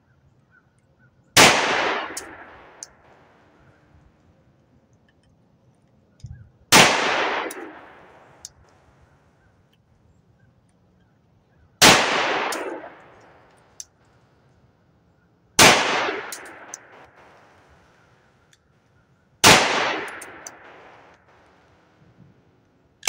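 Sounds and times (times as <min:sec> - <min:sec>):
pistol shots with echo: 0:01.4 - 0:03.3, 0:06.7 - 0:08.4, 0:11.8 - 0:13.4, 0:15.6 - 0:17.7, 0:19.4 - 0:21.7.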